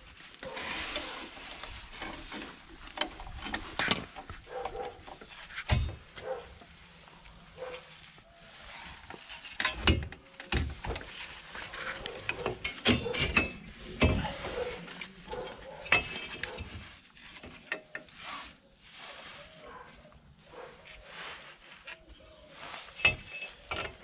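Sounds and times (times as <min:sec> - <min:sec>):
metal tools clinking: 0:11.8 - 0:14.2, 0:15.6 - 0:16.8, 0:22.9 - 0:24.0.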